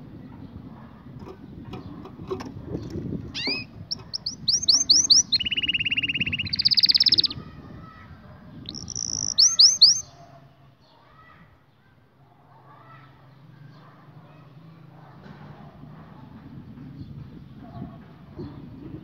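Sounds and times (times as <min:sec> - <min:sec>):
canary singing: 0:01.7 - 0:07.4, 0:08.6 - 0:10.3.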